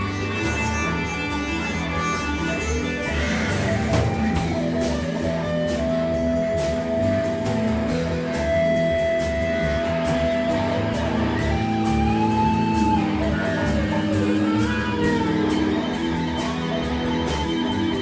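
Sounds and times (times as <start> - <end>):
theremin sliding notes: 0.0 - 7.7
rock guitar: 0.0 - 18.0
steady drum beat: 0.0 - 18.0.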